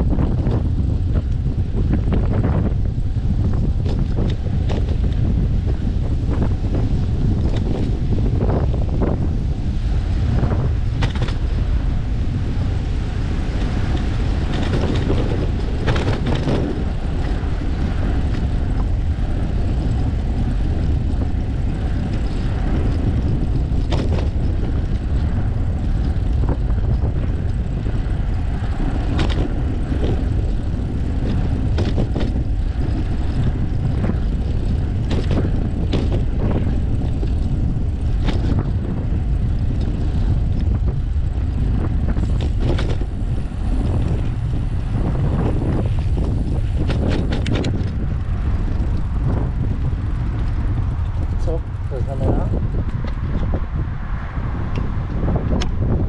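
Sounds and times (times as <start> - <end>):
bicycle tyres rolling: 0.0 - 56.0
wind on microphone: 0.0 - 56.0
knocks and rattles: 14.5 - 16.8, 34.3 - 37.5.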